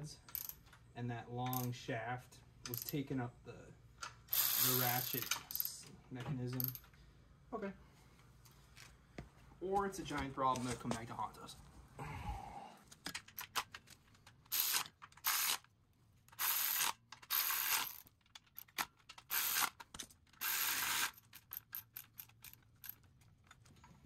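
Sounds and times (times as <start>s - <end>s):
hand ratchet clicking: 16.3s - 23.0s.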